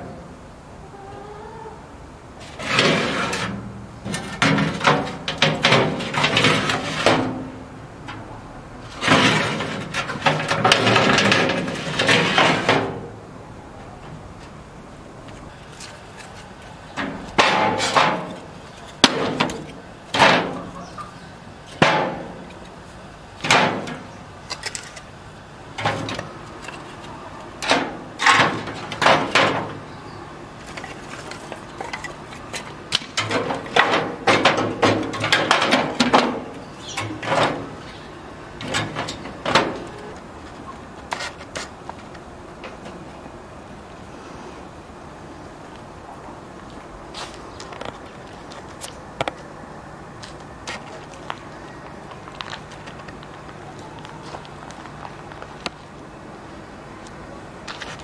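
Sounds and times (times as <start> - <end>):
wooden sticks clattering on metal rack: 2.4 - 8.2, 8.9 - 13.0, 15.7 - 20.9, 21.7 - 22.8, 25.8 - 29.8, 30.6 - 37.8, 38.6 - 40.2.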